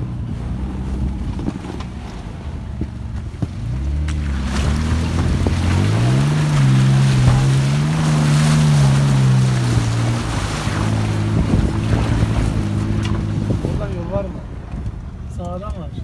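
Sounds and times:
suv engine pulling hard: 0:00.0 - 0:16.0
water splashing: 0:03.7 - 0:14.6.

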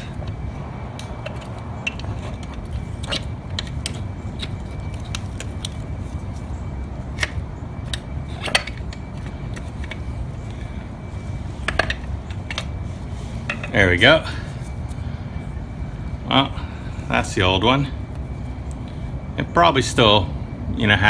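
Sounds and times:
metal parts clicking and knocking: 0:00.0 - 0:05.8, 0:07.1 - 0:10.1, 0:11.6 - 0:12.8, 0:13.4 - 0:13.8
low background rumble: 0:00.0 - 0:19.7.

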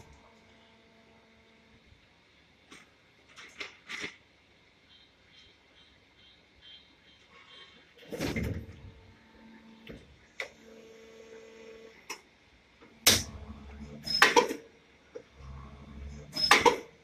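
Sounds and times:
low hydraulic hum: 0:12.8 - 0:17.0
loud mechanical clunks: 0:13.0 - 0:14.6.

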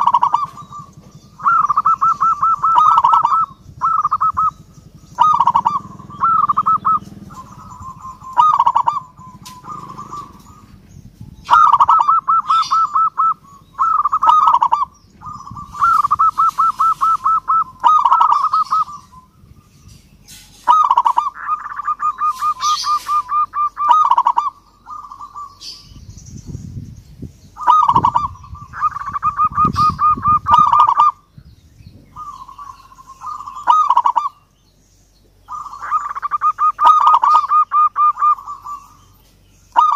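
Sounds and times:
dove cooing: 0:00.0 - 0:26.0, 0:27.6 - 0:31.4, 0:32.1 - 0:34.5, 0:35.4 - 0:39.9.

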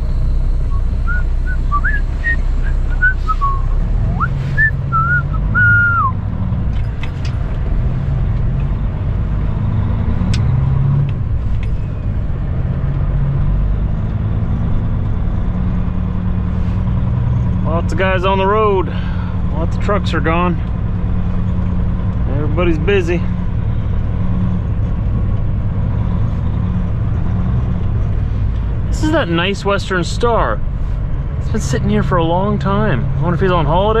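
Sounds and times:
truck diesel engine running: 0:00.0 - 0:34.0
person whistling: 0:00.7 - 0:06.2.

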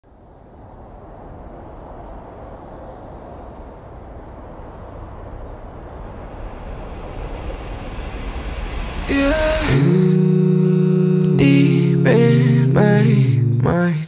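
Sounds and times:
steady rushing noise: 0:00.0 - 0:13.0
high bird chirps: 0:03.0 - 0:03.3.

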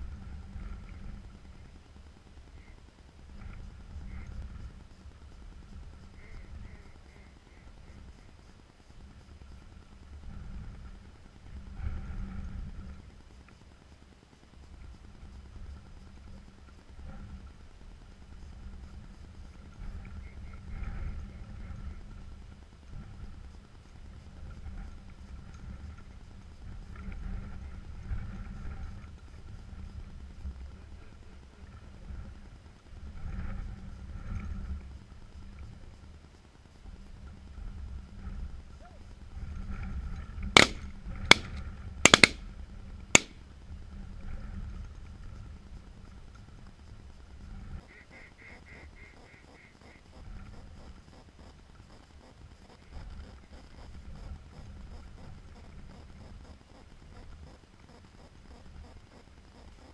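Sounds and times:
shotgun shots: 0:40.6 - 0:41.5, 0:42.1 - 0:42.4.

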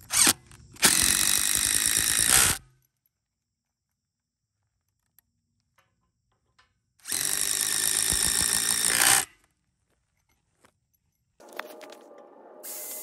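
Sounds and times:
power drill driving a screw: 0:00.0 - 0:02.6, 0:07.0 - 0:09.4.

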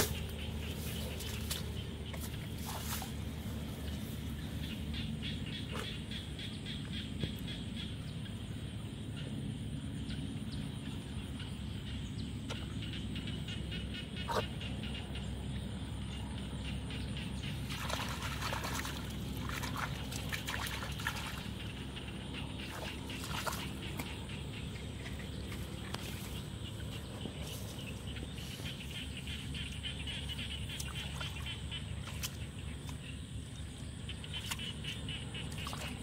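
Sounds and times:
mud squelching and scraping: 0:00.0 - 0:05.0, 0:17.6 - 0:33.1, 0:34.1 - 0:36.0
low outdoor rumble: 0:00.0 - 0:36.0.

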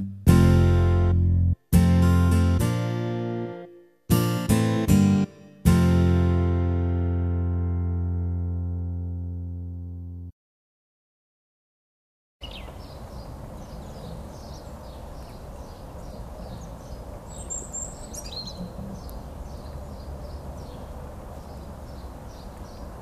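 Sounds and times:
small bird chirping: 0:12.4 - 0:23.0.

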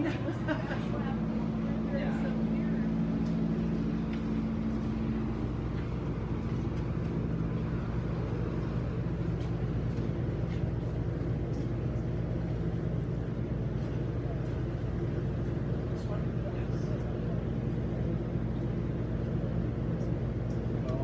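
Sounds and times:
fan humming: 0:00.0 - 0:21.0.

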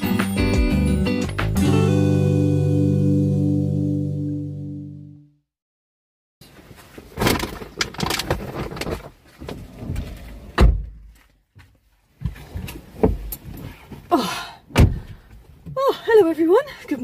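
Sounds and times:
rustling and clicks: 0:06.4 - 0:10.3.

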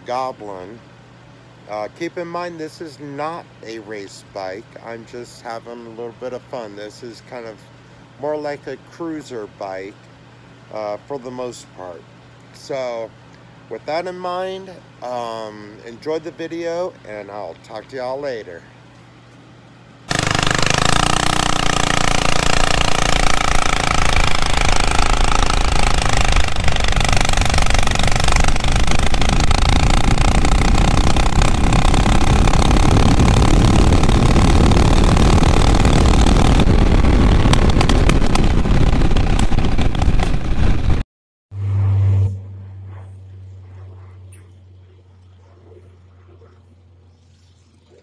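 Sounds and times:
minibike engine at full throttle: 0:20.1 - 0:41.0
short loud burst: 0:20.1 - 0:41.0
wind rush: 0:24.3 - 0:41.0
quiet low hum: 0:41.8 - 0:48.0.

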